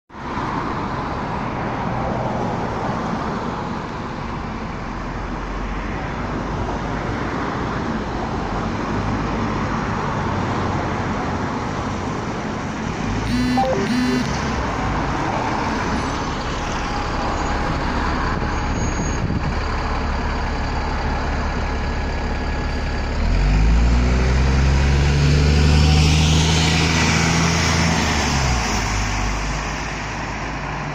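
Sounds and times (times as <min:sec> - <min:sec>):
bus diesel engine running: 0:10.8 - 0:24.8
short loud sound: 0:13.3 - 0:14.6.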